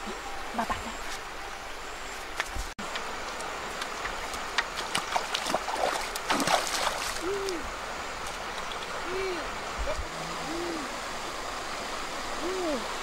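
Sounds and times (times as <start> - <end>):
river rushing: 2.8 - 13.0
feet splashing in shallow water: 4.0 - 7.5.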